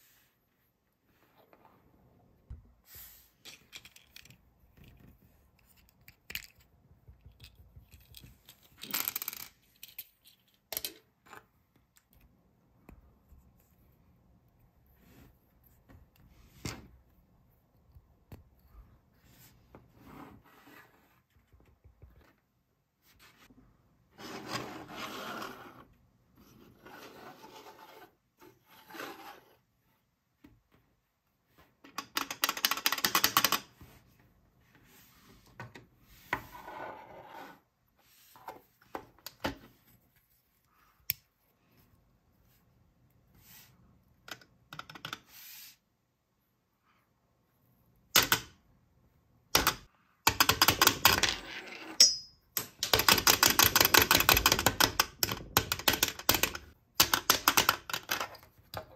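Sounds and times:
plastic toy pieces clicking: 32.0 - 33.7, 52.6 - 58.4.

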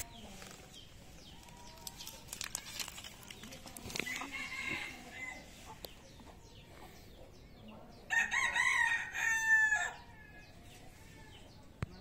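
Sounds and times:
rooster crowing: 8.1 - 10.0.

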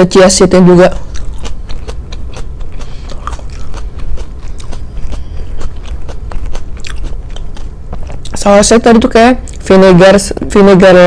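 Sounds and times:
low steady hum: 0.0 - 11.0
chewing crunchy salad: 0.9 - 8.4.

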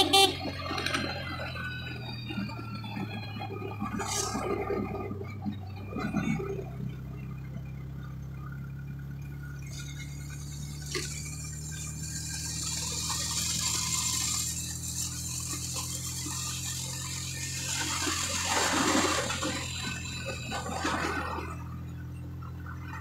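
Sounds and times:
motorcycle engine running: 0.0 - 23.0
wind and road rush: 9.9 - 23.0.

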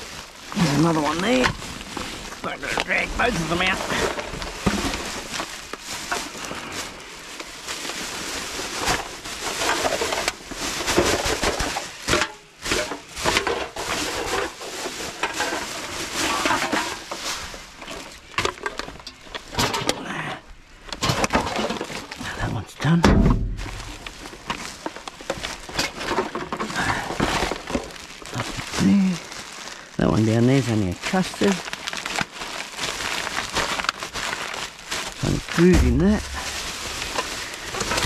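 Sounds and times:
plastic bags rustling: 0.0 - 38.0
rubbish knocking in dumpster: 23.0 - 24.0.

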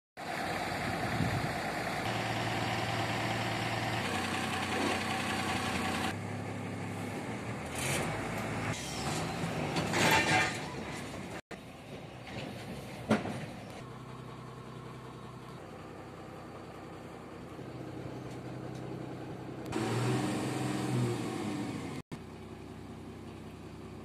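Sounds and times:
truck diesel engine idling: 0.2 - 7.7, 13.6 - 20.0, 22.2 - 24.0.

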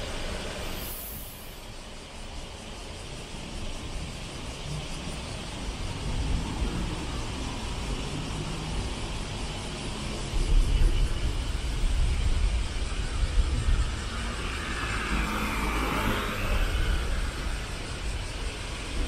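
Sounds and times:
traffic rumble: 0.0 - 19.0
vehicle passing close: 13.4 - 19.0.

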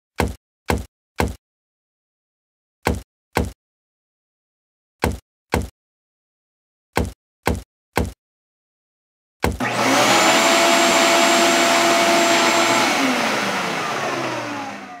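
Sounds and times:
shop vacuum whining: 9.6 - 15.0.

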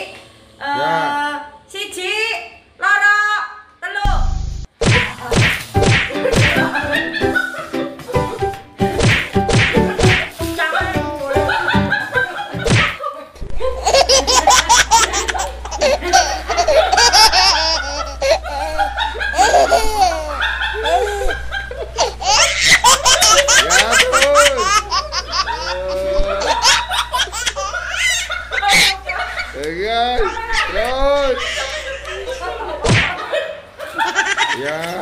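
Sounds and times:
women laughing hard: 6.1 - 8.4, 10.8 - 29.6, 30.2 - 35.0.

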